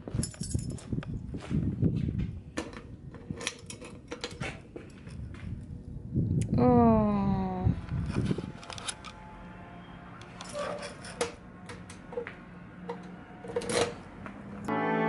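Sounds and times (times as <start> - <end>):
keys jingling: 0.0 - 1.0.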